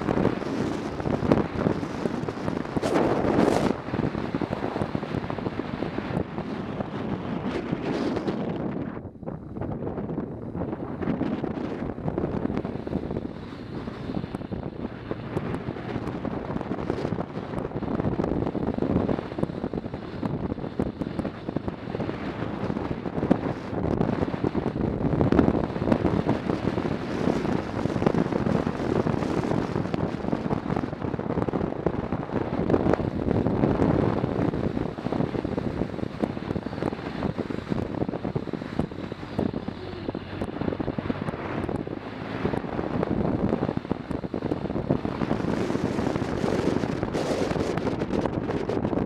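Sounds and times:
road noise: 0.0s - 49.0s
wind buffeting microphone: 0.0s - 49.0s
motorcycle engine: 10.4s - 49.0s.

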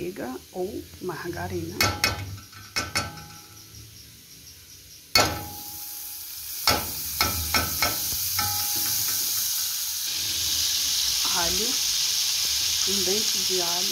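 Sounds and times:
fat sizzling: 0.0s - 13.9s
metal spoon clinking on pot: 1.8s - 3.5s, 6.7s - 9.4s.

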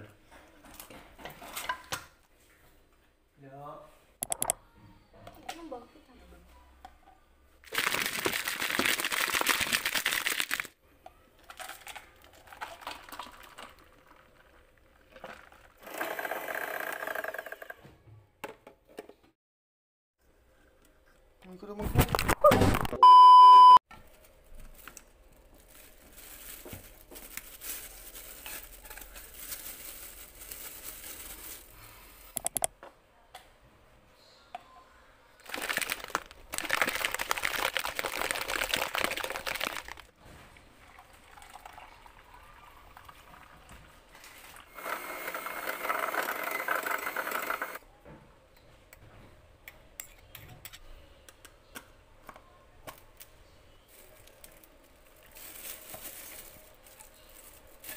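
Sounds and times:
liquid sloshing in shaken cup: 11.5s - 15.8s, 35.4s - 40.1s
plastic cups and lids handled: 24.0s - 32.7s, 35.4s - 40.1s, 53.9s - 57.9s.

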